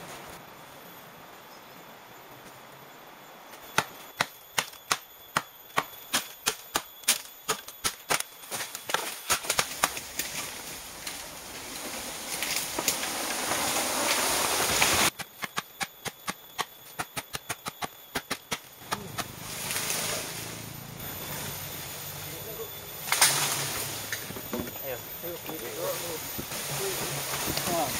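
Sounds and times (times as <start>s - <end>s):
machete chopping bamboo: 3.7s - 10.2s, 15.1s - 19.4s
steady hiss: 6.1s - 27.9s
rustling hiss: 6.8s - 16.2s, 16.9s - 27.9s.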